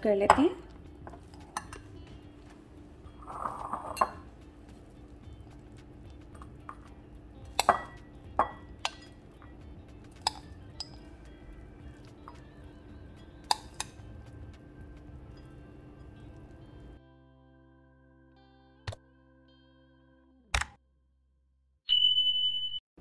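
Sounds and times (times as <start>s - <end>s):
soft background music: 0.0s - 20.5s
spoon clinking against a bowl: 1.1s - 1.9s, 3.7s - 4.3s, 7.5s - 9.5s, 10.2s - 11.1s.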